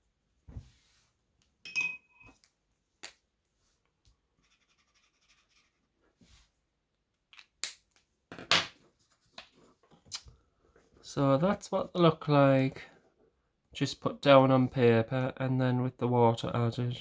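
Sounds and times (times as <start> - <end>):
short clinking ring: 1.6 - 2.3.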